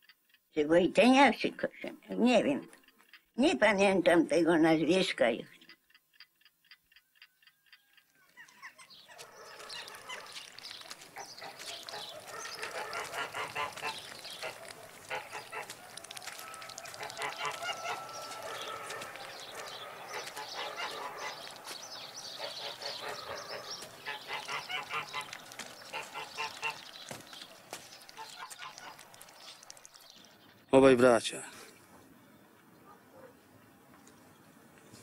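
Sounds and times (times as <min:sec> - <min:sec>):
geese honking: 0:08.4 - 0:30.1.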